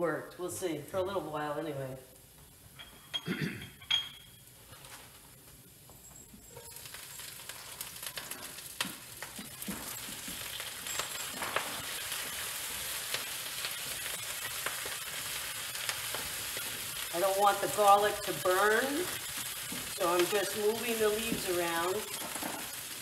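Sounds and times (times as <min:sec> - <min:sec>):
leaves sizzling in hot oil: 0:06.4 - 0:23.0.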